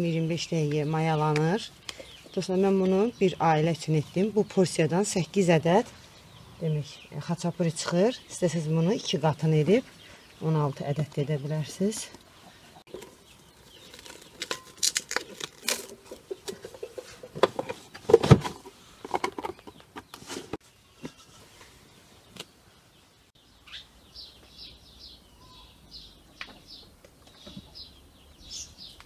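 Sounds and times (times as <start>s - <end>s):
cling film crinkling: 13.6s - 16.6s
small bird chirping rapidly: 23.4s - 29.0s.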